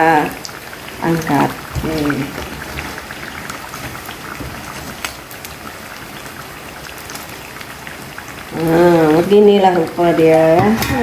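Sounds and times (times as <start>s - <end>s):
oil sizzling and crackling: 0.0s - 11.0s.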